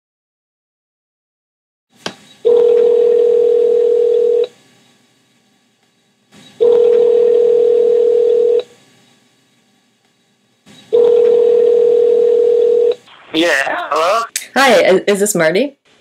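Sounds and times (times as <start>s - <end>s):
telephone ringback tone: 2.5s - 4.5s, 6.6s - 8.6s, 11.0s - 13.0s.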